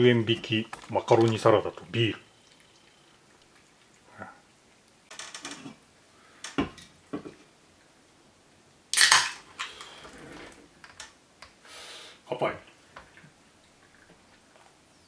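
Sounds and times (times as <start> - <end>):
beer can opening pop and hiss: 8.9 - 9.9.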